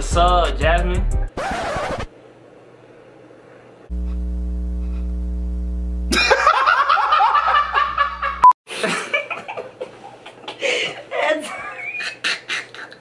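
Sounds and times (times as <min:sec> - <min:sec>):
low buzzing tone: 0:03.9 - 0:06.3
man laughing: 0:06.1 - 0:13.0.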